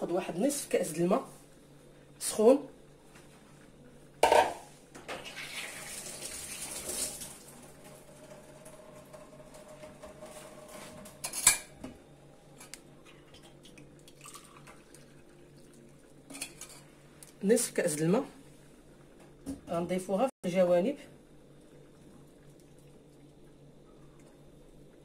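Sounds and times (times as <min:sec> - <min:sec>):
water pouring into glass: 0:13.3 - 0:15.9.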